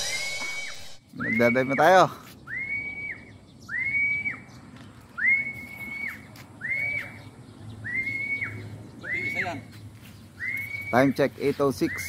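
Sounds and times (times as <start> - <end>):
person whistling sliding notes: 0.0 - 1.6.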